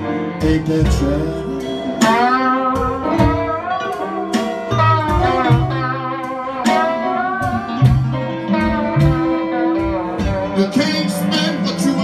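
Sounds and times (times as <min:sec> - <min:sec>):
bending sliding lead melody: 0:00.0 - 0:12.0
electric bass line: 0:00.0 - 0:12.0
live blues band playing: 0:00.0 - 0:12.0
person singing: 0:00.2 - 0:03.3, 0:10.2 - 0:12.0.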